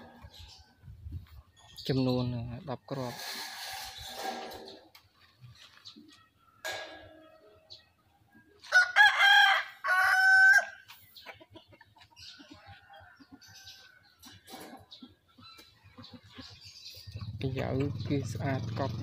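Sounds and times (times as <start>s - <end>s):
rooster crowing: 8.7s - 10.8s.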